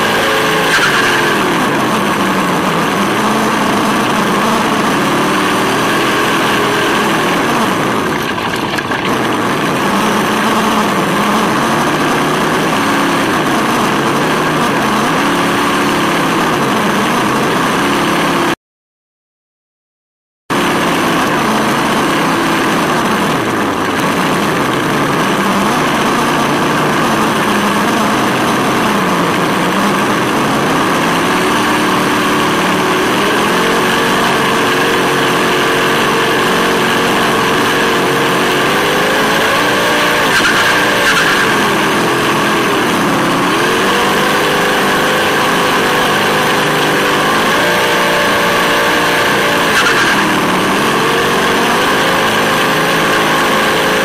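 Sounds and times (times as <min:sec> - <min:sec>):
simulated engine revving from speaker: 0:20.5 - 0:54.0.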